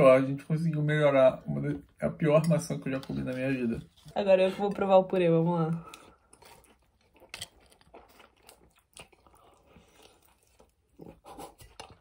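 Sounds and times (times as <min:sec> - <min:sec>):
person chewing: 0:05.8 - 0:12.0.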